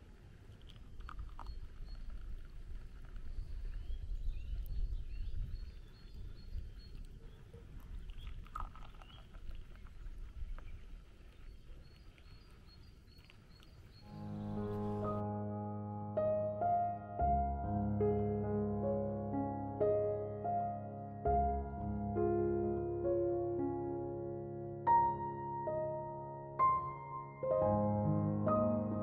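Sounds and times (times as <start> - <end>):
wind rumbling on microphone: 0.0 - 15.3
faint bird chirps: 3.2 - 15.2.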